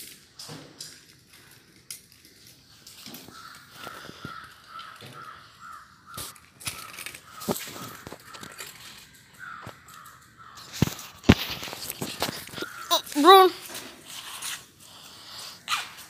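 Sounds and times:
puppy crunching dry kibble: 0.8s - 15.1s
crow cawing: 3.3s - 11.1s, 12.4s - 13.3s.

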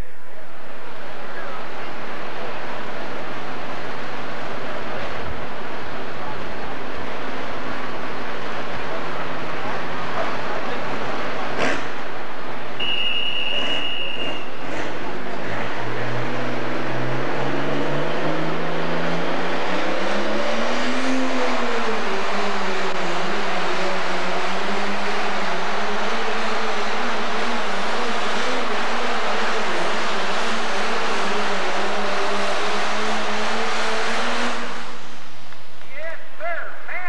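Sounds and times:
tractor diesel engine at full throttle: 13.5s - 35.4s.

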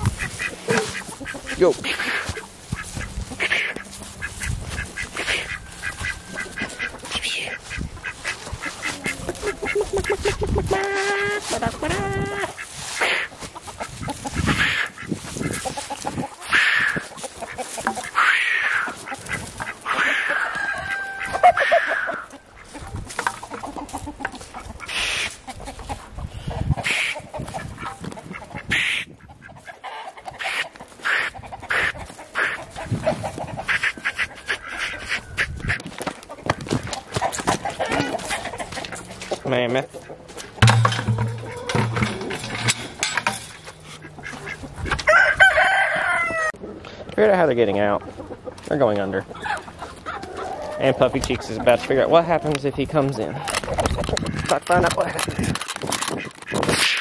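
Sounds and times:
chickens clucking: 0.0s - 57.0s
ducks quacking: 0.0s - 57.0s
rooster crowing: 5.5s - 6.9s, 20.0s - 22.3s, 45.0s - 46.6s.

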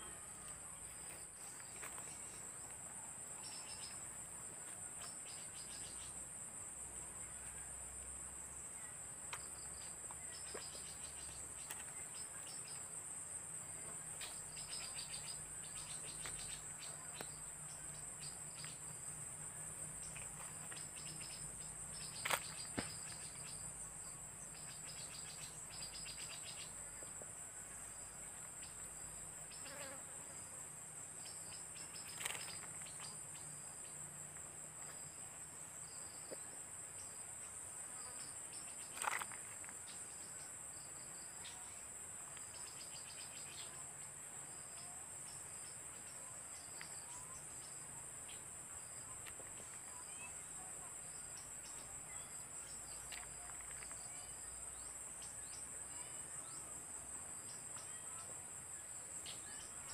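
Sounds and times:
insect pulsed trills: 14.2s - 27.0s, 27.9s - 30.5s.

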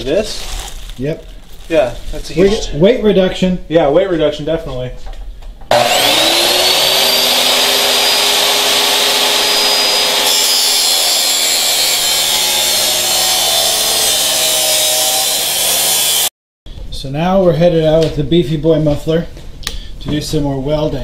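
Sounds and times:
cut-off saw grinding through metal: 5.7s - 16.3s.

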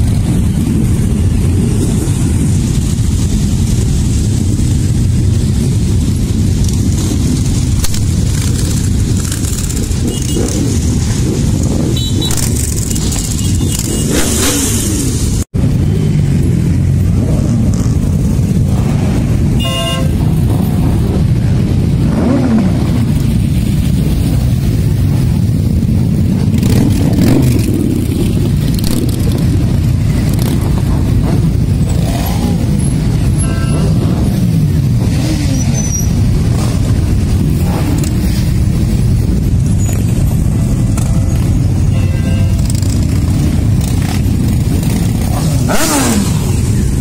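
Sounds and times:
many motorcycles passing: 0.0s - 47.0s
motorcycle revving: 0.0s - 47.0s
horn: 19.6s - 20.2s.

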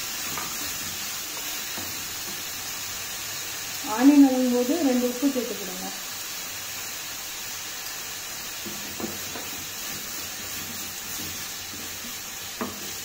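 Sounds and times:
onions sizzling in oil: 0.0s - 13.0s
light stirring knocks: 8.6s - 13.0s.

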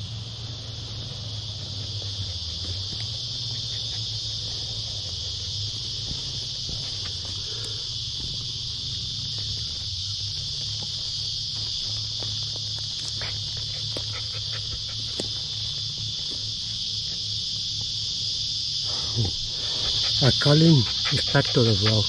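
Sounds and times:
insect chorus buzzing: 0.0s - 22.0s.

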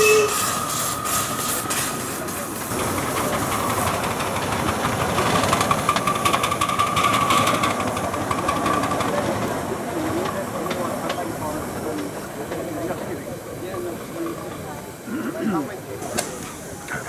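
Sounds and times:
steam hissing: 0.0s - 8.0s
steam locomotive exhaust beats: 0.0s - 15.0s.

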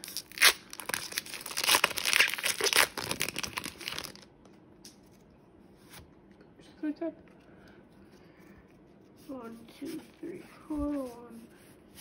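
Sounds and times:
foil wrapper tearing and crinkling: 0.0s - 4.3s.

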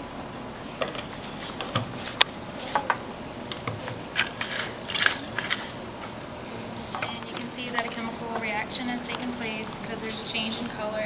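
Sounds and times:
liquid pouring into glass: 0.4s - 1.2s, 4.8s - 5.6s.

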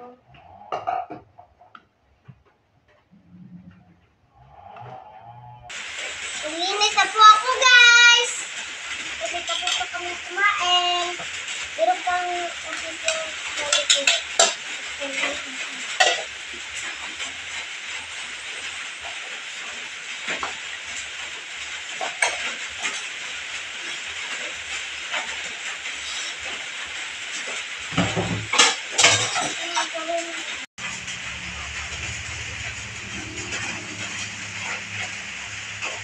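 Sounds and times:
dishes clinking and clattering: 0.7s - 1.7s, 13.0s - 14.6s, 16.0s - 16.4s, 27.9s - 30.0s
steady hiss: 5.7s - 36.0s.

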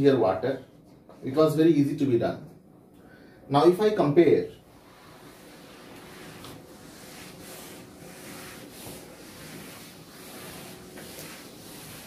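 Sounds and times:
duster wiping a chalkboard: 4.6s - 12.0s.

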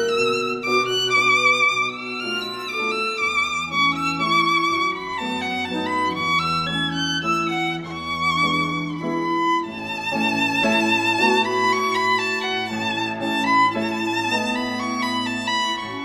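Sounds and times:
violin melody with vibrato: 0.0s - 16.0s.

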